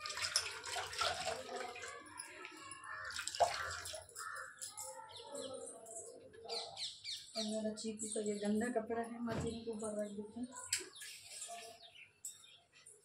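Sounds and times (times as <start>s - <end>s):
water splashing and dripping: 0.0s - 4.9s
birds chirping: 1.9s - 13.0s.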